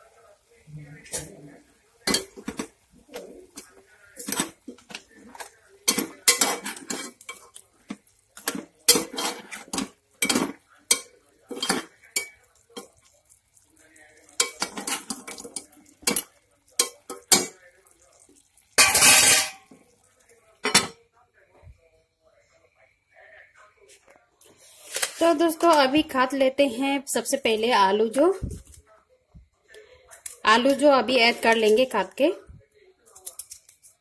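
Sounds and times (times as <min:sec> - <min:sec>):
metal spoon scraping a pot: 0:02.0 - 0:12.9, 0:14.3 - 0:17.6
metal lid clattering onto pot: 0:18.8 - 0:19.6.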